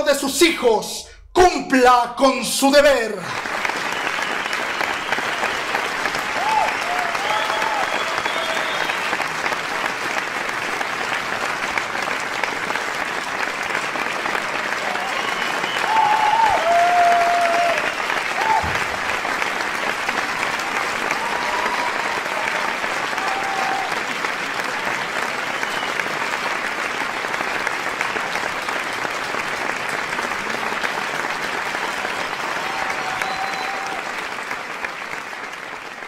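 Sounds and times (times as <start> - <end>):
crowd applauding: 2.8 - 36.0.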